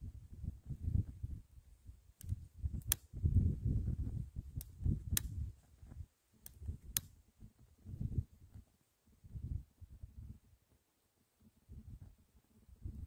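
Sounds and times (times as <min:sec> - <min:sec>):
lighter igniter clicking: 0:02.2 - 0:03.1.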